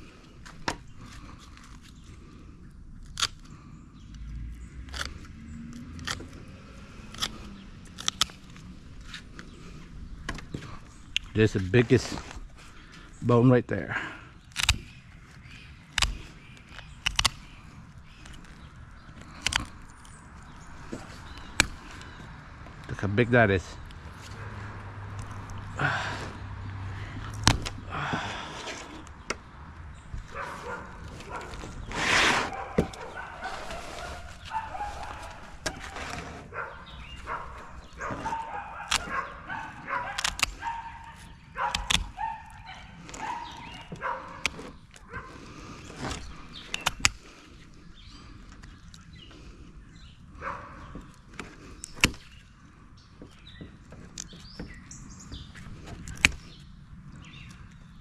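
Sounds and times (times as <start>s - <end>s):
metal snips cutting fin spines: 17.0s - 17.4s, 40.1s - 40.6s.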